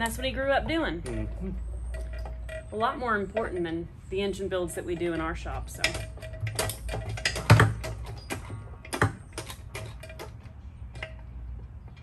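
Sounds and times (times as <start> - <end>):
metal clicks and clinks of tools: 5.0 - 11.3.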